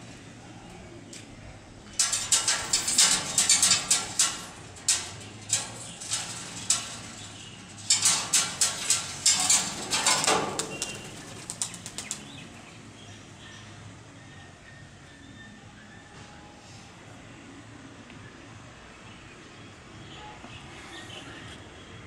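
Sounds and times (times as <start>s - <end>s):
bird wings flapping: 8.1s - 12.4s.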